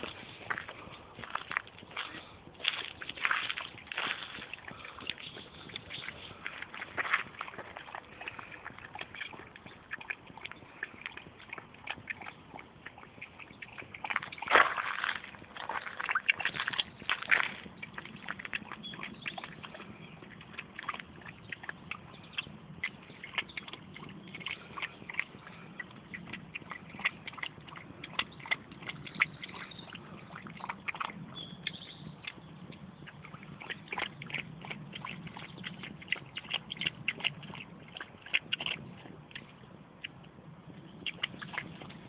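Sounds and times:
small splashes: 0.0s - 31.7s
animals lapping water: 0.0s - 42.0s.

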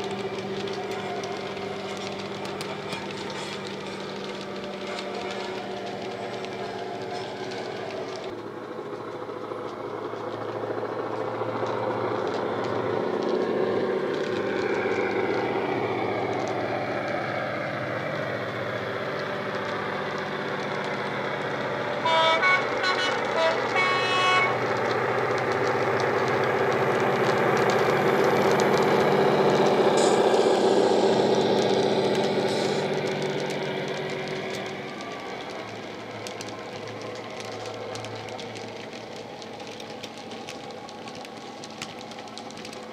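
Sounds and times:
diesel engine running: 0.0s - 42.9s
locomotive horn blasts: 22.0s - 24.6s.

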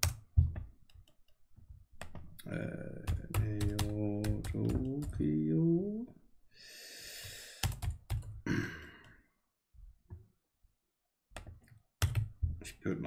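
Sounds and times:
computer keyboard typing: 3.0s - 5.4s, 7.6s - 8.4s, 11.4s - 12.4s
breathy exhale: 6.5s - 7.7s.

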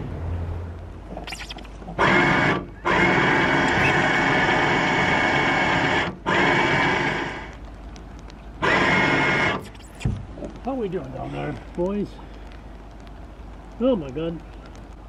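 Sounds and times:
power tool motor whining: 1.3s - 7.5s, 8.6s - 10.0s.

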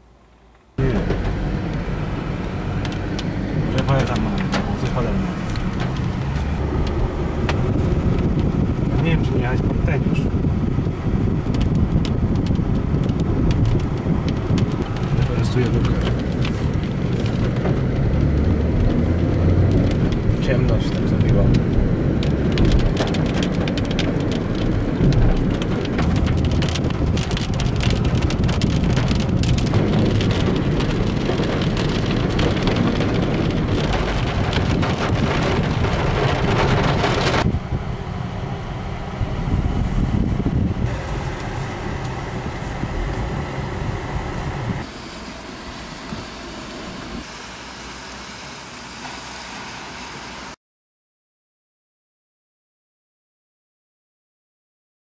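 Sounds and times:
heavy rain on car roof: 0.8s - 37.5s, 40.8s - 50.6s.

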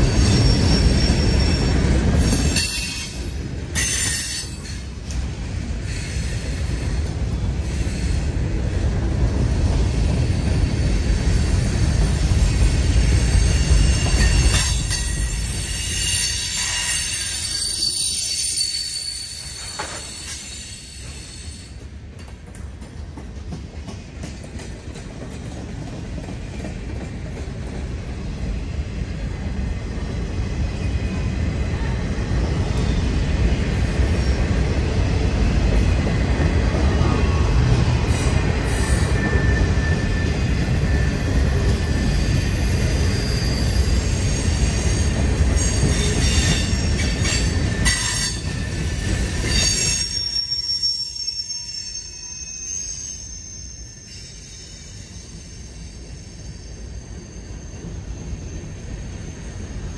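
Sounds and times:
high-pitched wheel squeal: 0.0s - 3.2s, 13.4s - 21.8s, 38.1s - 59.9s
train wheels rumbling on rail: 0.0s - 59.9s.

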